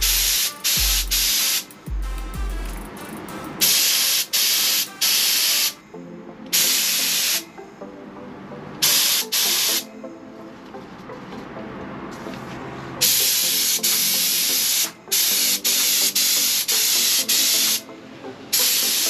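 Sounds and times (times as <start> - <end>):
spray gun hissing air bursts: 0.0 - 1.7, 3.6 - 5.8, 6.5 - 7.4, 8.8 - 9.9, 13.0 - 17.8, 18.5 - 19.0.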